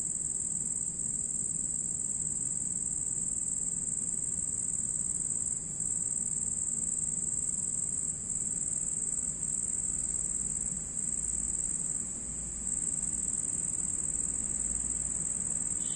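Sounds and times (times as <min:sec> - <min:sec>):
cricket trilling: 0:12.6 - 0:15.9.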